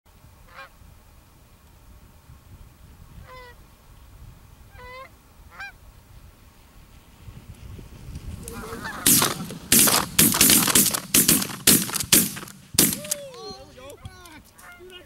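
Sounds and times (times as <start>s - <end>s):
wind rumble on microphone: 0.1s - 10.3s
goose honks: 8.5s - 9.6s, 14.6s - 15.0s.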